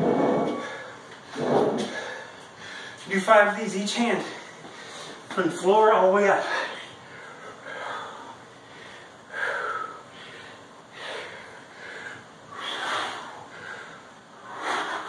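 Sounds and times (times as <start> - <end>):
man breathing hard: 1.8 - 3.1, 4.2 - 5.3, 6.3 - 15.0.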